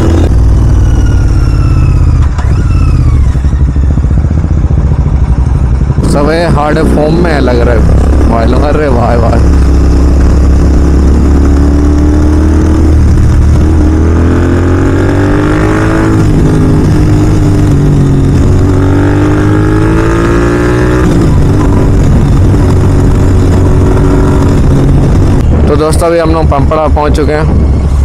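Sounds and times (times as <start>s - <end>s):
motorcycle engine accelerating: 0.0s - 28.0s.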